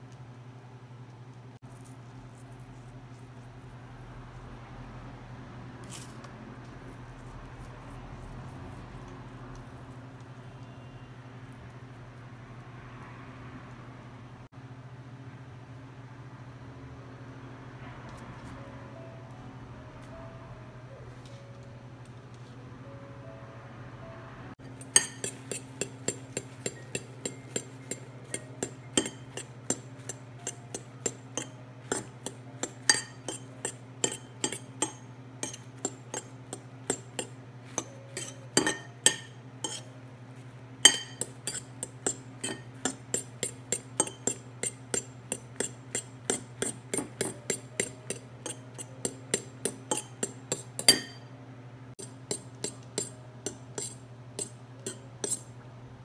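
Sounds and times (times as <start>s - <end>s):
low steady hum: 0.0s - 56.0s
fork clinking against ceramic plate: 24.7s - 39.9s, 40.8s - 51.3s, 52.0s - 55.5s.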